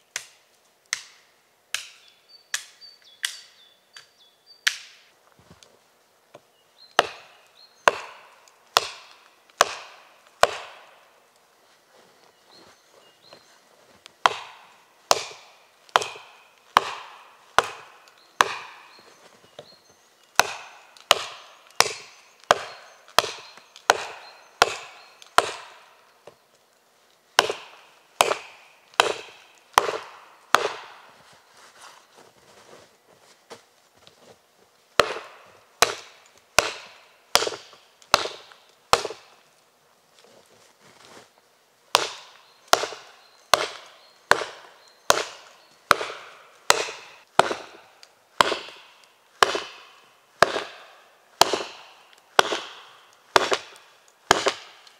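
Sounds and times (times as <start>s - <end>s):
hatchet chopping into tree trunk: 7.0s - 11.0s, 14.2s - 19.0s, 20.4s - 25.9s, 27.4s - 31.0s, 35.0s - 39.3s, 41.9s - 54.9s.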